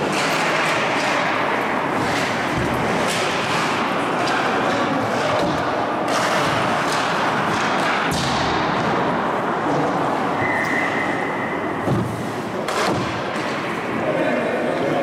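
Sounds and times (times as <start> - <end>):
skates scraping ice: 0.0 - 9.1
hockey sticks knocking pucks: 0.0 - 9.2, 11.8 - 14.0.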